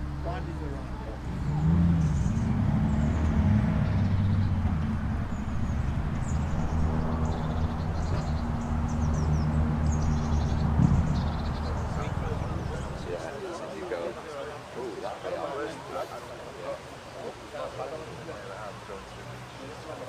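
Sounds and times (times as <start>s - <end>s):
engine running at low speed: 0.0s - 13.3s
birds chirping: 0.0s - 20.0s.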